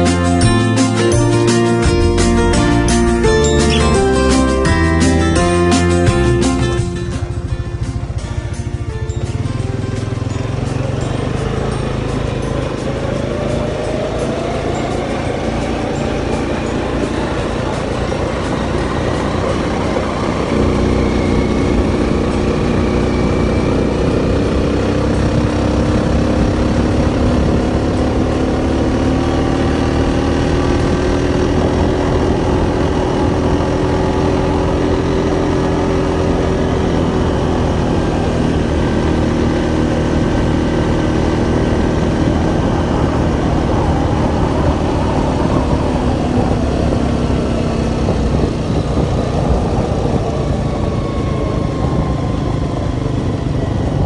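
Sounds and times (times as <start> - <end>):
vehicle engine running: 0.0 - 54.0
low rumble: 40.3 - 54.0.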